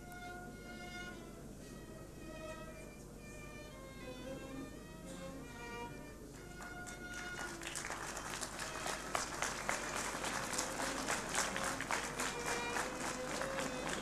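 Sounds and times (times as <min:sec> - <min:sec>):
instrumental processional music: 0:00.0 - 0:14.0
audience clapping: 0:06.4 - 0:14.0.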